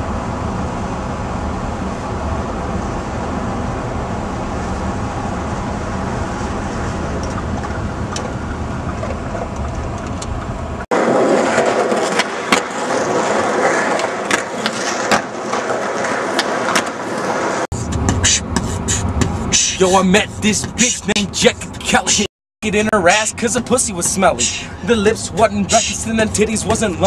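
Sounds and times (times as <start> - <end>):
steady low rumble: 0.0 - 11.1, 17.7 - 27.0
skateboard wheels rolling on concrete: 0.0 - 22.2, 23.4 - 27.0
skateboard clacking on ground: 11.0 - 18.2.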